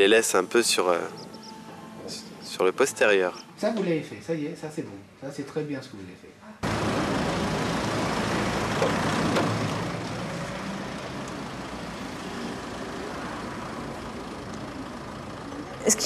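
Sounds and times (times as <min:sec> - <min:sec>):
vehicle engine running: 0:00.0 - 0:03.5, 0:06.6 - 0:16.0
street noise: 0:00.0 - 0:03.9, 0:06.6 - 0:16.0.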